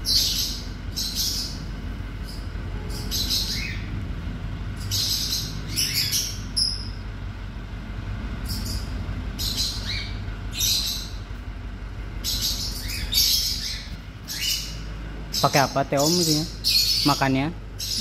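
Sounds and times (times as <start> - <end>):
squirrel squeaking: 4.8 - 7.0, 12.2 - 18.0.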